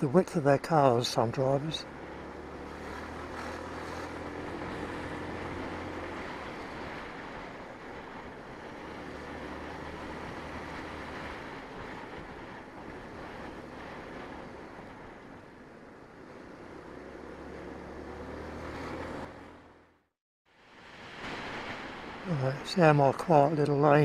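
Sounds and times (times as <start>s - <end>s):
road noise: 0.0s - 24.0s
scooter engine humming: 1.7s - 19.9s.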